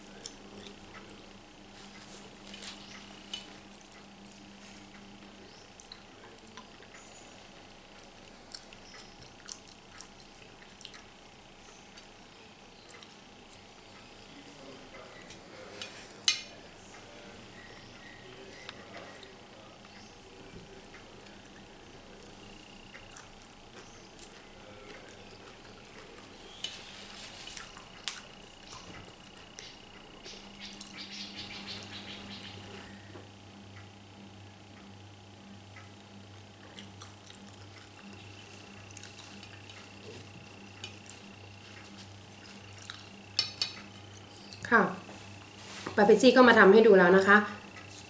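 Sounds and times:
person chewing: 0.0s - 1.2s, 8.0s - 11.2s, 20.9s - 31.0s, 36.6s - 44.6s, 47.7s - 48.0s
faint steady hum: 0.0s - 48.0s.

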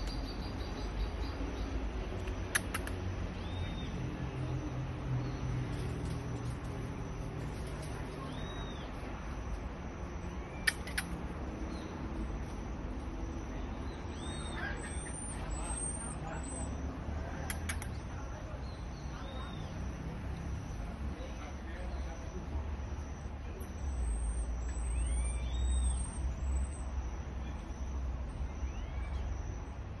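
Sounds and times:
marmoset chirps: 0.0s - 4.1s, 5.2s - 12.6s, 13.3s - 22.4s, 23.1s - 29.8s
marmoset high-pitched calls: 10.3s - 11.9s, 13.9s - 16.8s, 24.0s - 26.7s
marmoset whistling calls: 14.1s - 16.6s.

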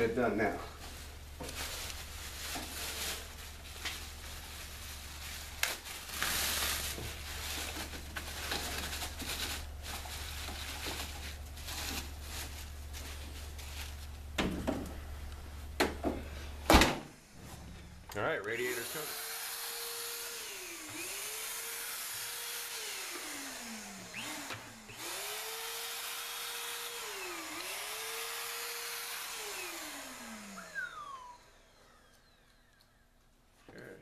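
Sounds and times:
steady low hum: 0.0s - 18.5s
plastic sheeting crinkling: 0.7s - 14.3s.

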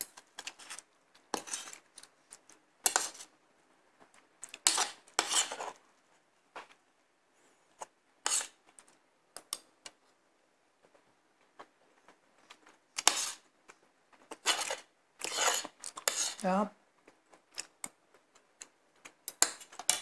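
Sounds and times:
cutlery scraping on a plate: 0.4s - 1.8s, 2.8s - 3.3s, 4.6s - 5.8s, 8.2s - 8.6s, 13.0s - 13.4s, 14.3s - 16.4s, 19.4s - 20.0s.

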